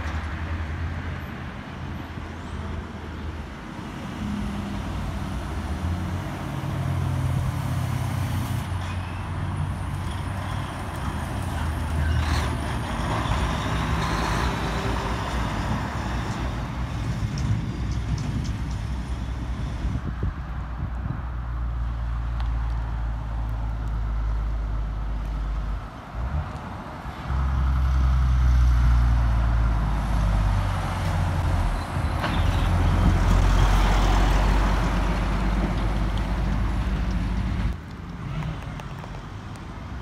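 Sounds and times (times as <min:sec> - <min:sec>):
heavy diesel trucks driving past: 0:00.0 - 0:40.0.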